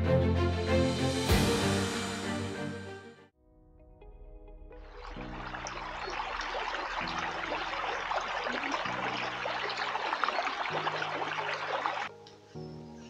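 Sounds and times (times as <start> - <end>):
brook trickling over stones: 4.9 - 12.1.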